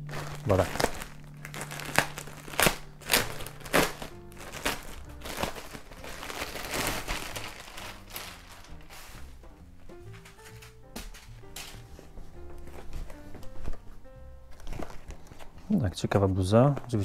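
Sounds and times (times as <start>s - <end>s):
plastic bag crinkling: 0.0s - 9.3s, 14.5s - 15.8s
background music: 0.0s - 17.0s.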